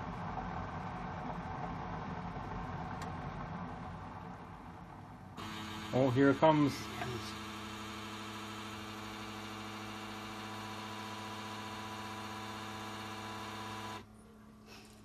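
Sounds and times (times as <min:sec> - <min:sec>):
coffee maker humming: 0:05.4 - 0:14.1.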